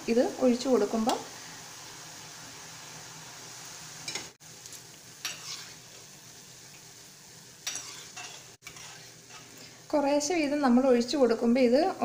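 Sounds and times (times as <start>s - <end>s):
batter sizzling in hot oil: 0.0s - 12.0s
metal ladle clinks and scrapes: 7.7s - 9.5s.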